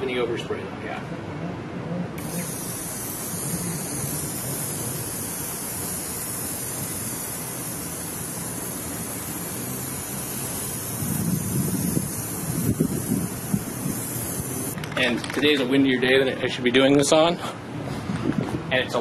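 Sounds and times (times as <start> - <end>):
aerosol can spraying: 2.2 - 15.0.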